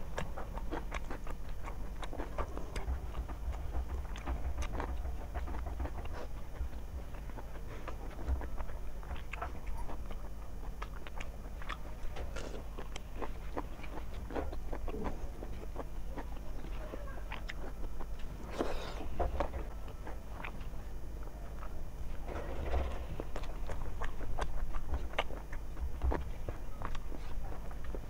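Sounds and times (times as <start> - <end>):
fingers mixing food on a plate: 0.0 - 21.8
chewing and lip smacks: 0.0 - 22.2, 22.8 - 28.0
low hum: 0.0 - 28.0.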